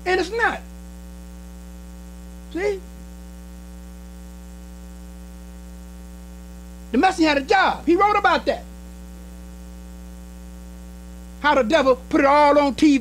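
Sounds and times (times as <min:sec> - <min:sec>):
electrical mains hum: 0:00.0 - 0:13.0
person speaking a word: 0:02.5 - 0:02.8.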